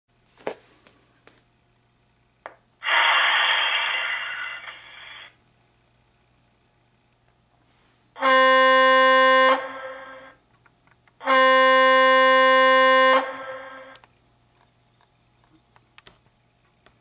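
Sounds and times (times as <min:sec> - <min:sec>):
streetcar horn blasts: 0:08.2 - 0:10.1, 0:11.2 - 0:13.9.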